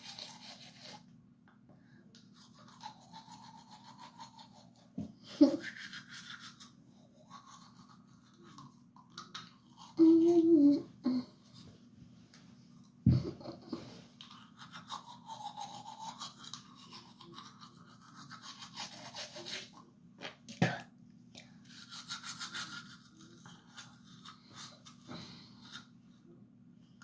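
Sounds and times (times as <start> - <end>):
toothbrush scrubbing teeth: 0.0 - 1.1, 2.2 - 10.5, 14.2 - 19.9, 21.6 - 25.9.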